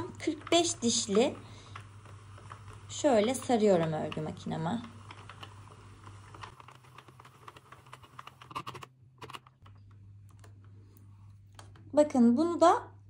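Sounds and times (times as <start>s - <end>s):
knitting machine clicking: 0.1s - 9.6s.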